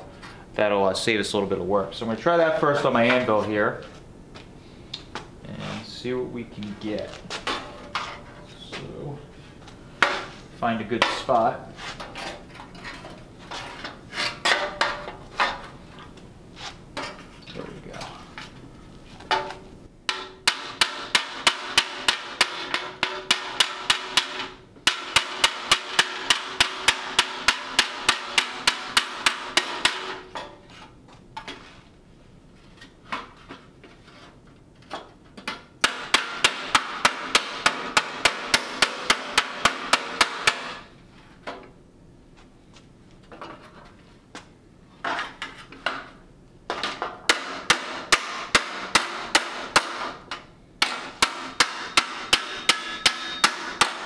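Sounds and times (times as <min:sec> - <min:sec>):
hammer striking sheet metal: 0:19.3 - 0:30.5, 0:35.8 - 0:40.9, 0:47.3 - 0:54.0.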